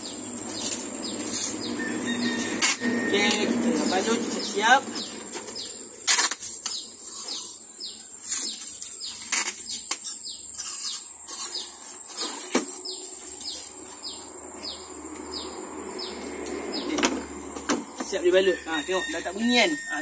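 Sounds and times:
bird calling: 0:00.0 - 0:20.0
packing tape ripping off roll: 0:06.0 - 0:07.5, 0:08.2 - 0:12.7.

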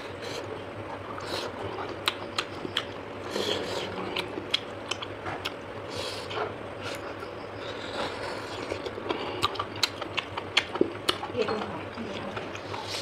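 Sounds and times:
person chewing crisp food: 0:00.0 - 0:11.4
mouth clicks and smacks: 0:01.9 - 0:03.0, 0:08.8 - 0:11.3.

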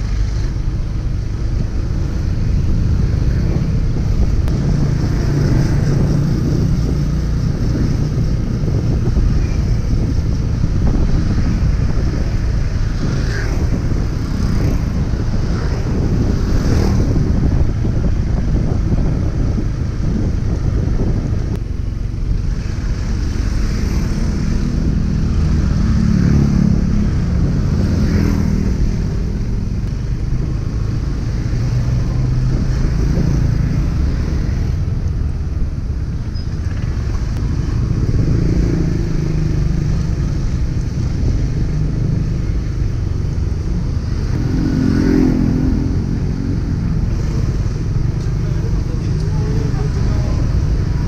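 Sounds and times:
motor scooters passing: 0:00.0 - 0:21.3, 0:22.0 - 0:51.0
wind and road noise: 0:00.0 - 0:51.0
car passing: 0:10.9 - 0:17.4.

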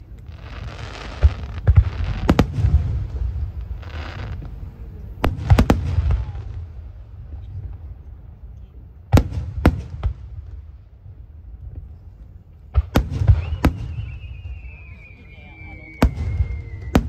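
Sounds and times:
hissing crackle: 0:00.0 - 0:07.0
fireworks bangs: 0:00.0 - 0:07.8, 0:09.1 - 0:10.7, 0:12.7 - 0:17.0.

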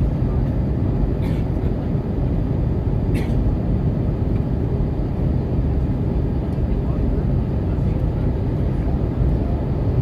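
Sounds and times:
airplane engines rumbling: 0:00.0 - 0:10.0.

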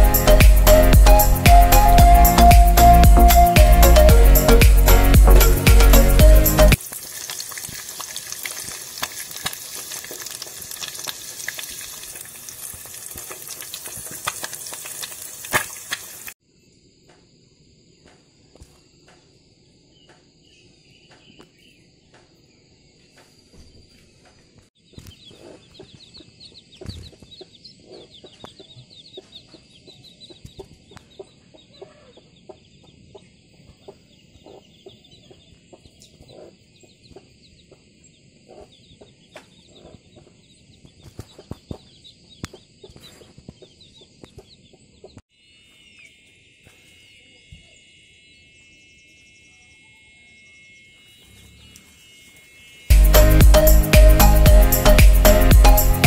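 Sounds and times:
insects buzzing: 0:06.4 - 0:23.5, 0:45.3 - 0:55.8
chick peeping: 0:23.2 - 0:45.2
chicken clucking: 0:25.0 - 0:45.2.

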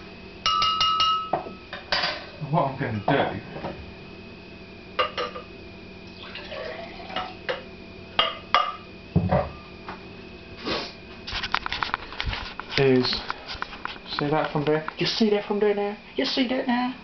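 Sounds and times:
glassware clinking: 0:00.5 - 0:02.2.

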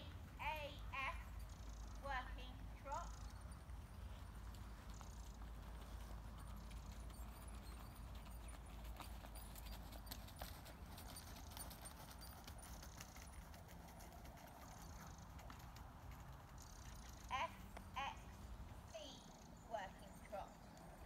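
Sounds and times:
faint horse hoofbeats trotting: 0:00.0 - 0:21.0.

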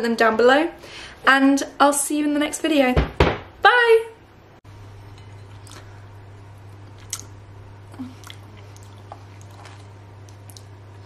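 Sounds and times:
person chewing: 0:05.4 - 0:06.1, 0:06.7 - 0:11.0
wet mouth clicks: 0:07.0 - 0:07.4.

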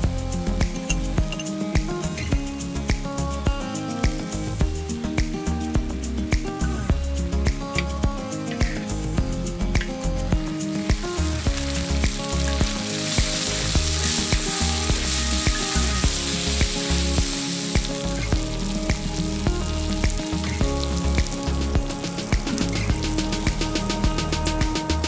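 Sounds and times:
background music: 0:00.0 - 0:25.0
food sizzling in a pan: 0:00.0 - 0:25.0.

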